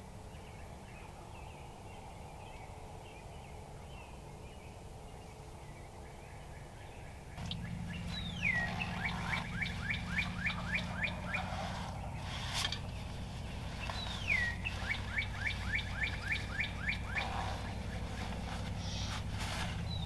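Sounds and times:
dawn chorus birdsong: 0.0s - 20.0s
distant turkey gobbling: 7.4s - 20.0s
songbird whistle and falling notes: 7.4s - 20.0s.

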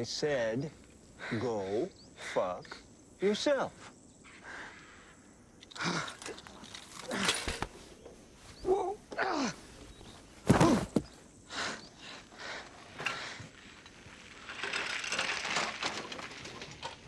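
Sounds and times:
wheelchair rattling over dirt: 6.0s - 11.2s, 12.4s - 17.0s.

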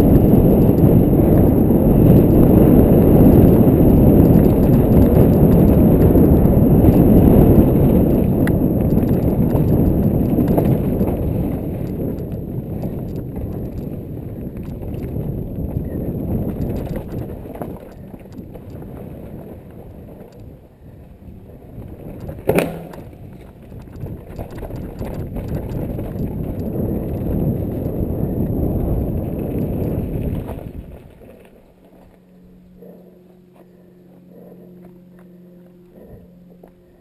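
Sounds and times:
bike clattering over bumps: 0.0s - 14.0s
mountain bike tyres on dirt: 0.0s - 32.6s.

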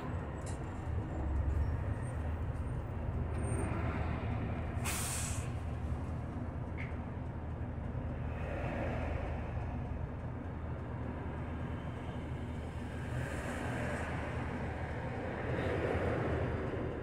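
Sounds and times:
bus engine and road rumble: 0.0s - 17.0s
air hiss: 4.8s - 5.5s.

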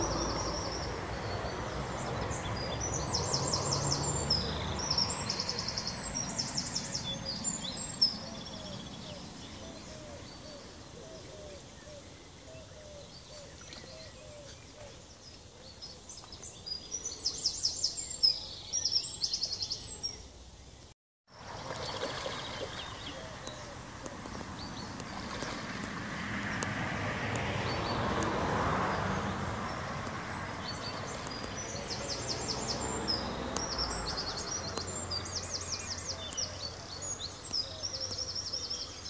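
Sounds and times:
small birds singing trills: 0.0s - 39.0s
fish splashing in water: 21.3s - 35.7s.

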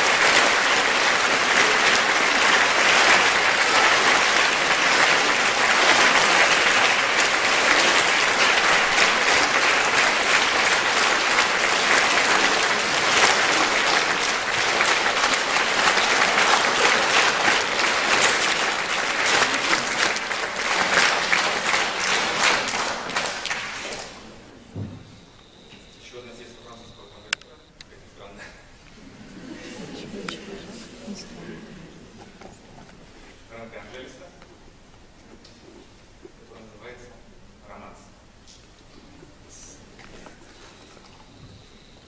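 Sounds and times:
audience applauding: 0.0s - 24.4s, 29.0s - 33.0s.

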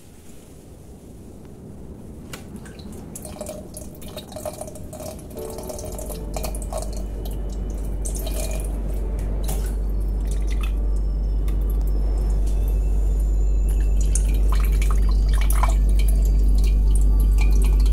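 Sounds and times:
water dripping and trickling: 2.5s - 17.9s
deep steady tone: 5.2s - 17.9s.

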